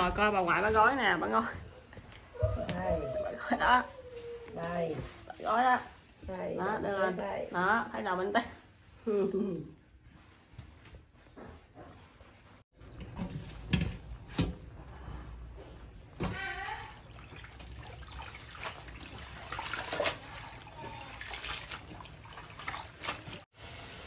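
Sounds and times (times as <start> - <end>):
water splashing in a steel bowl: 16.3 - 23.9.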